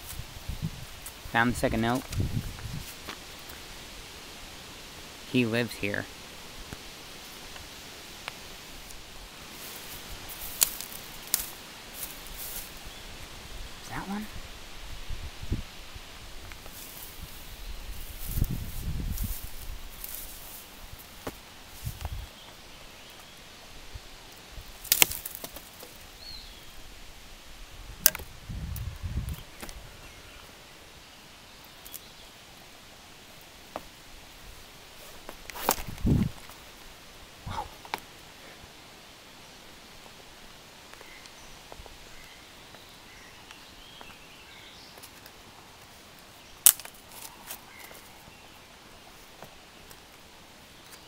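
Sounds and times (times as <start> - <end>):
twigs snapping: 10.3 - 12.6, 24.7 - 26.0, 28.0 - 29.8, 35.2 - 36.6, 46.6 - 48.1
sharp crack: 24.8 - 25.9, 28.0 - 28.3, 46.6 - 47.6
rustling and handling noise: 34.9 - 36.7.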